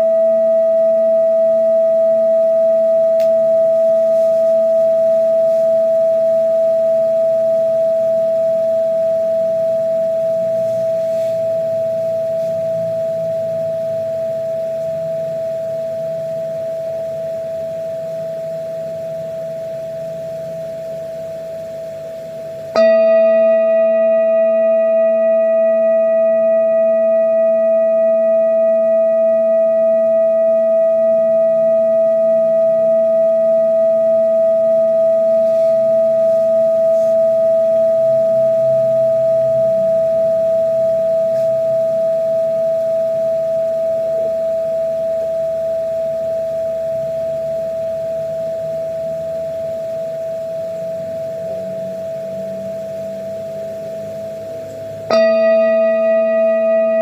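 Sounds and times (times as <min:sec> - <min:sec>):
singing bowl ringing: 0:00.0 - 0:57.0.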